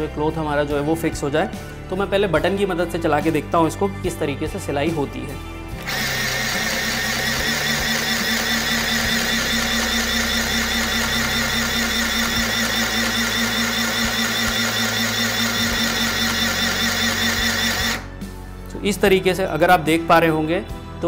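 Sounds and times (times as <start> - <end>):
sewing machine stitching: 5.8 - 18.1.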